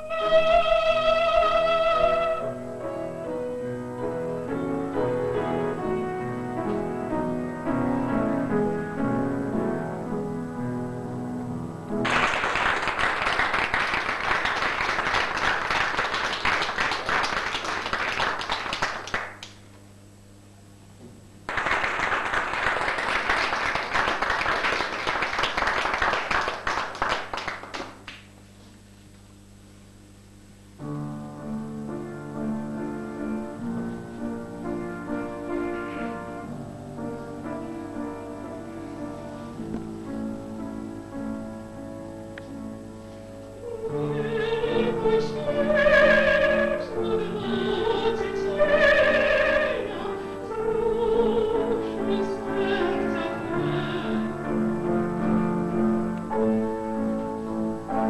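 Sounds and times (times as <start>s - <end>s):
piano playing: 0.0s - 18.6s, 30.8s - 58.0s
audience applause: 12.0s - 19.6s, 21.5s - 28.3s.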